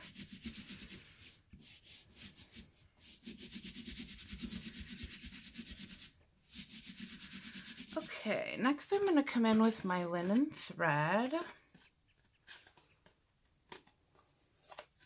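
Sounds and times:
palms rubbing over cardstock: 0.0 - 8.1.

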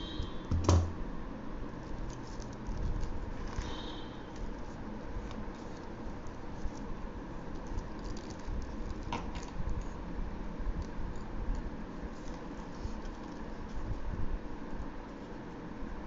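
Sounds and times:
paper rustling: 1.8 - 10.0, 10.8 - 14.0.

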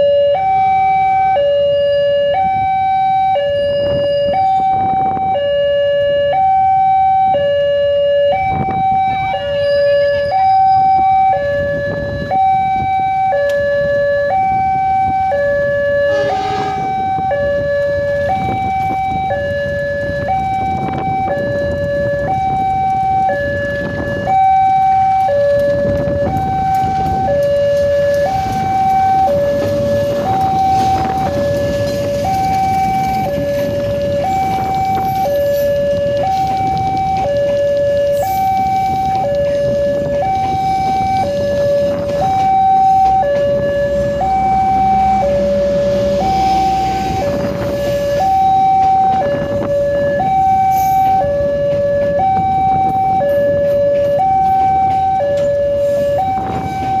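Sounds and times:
two-tone crossing alarm: 0.0 - 57.0
train rumbling past: 14.6 - 21.2, 23.8 - 57.0.

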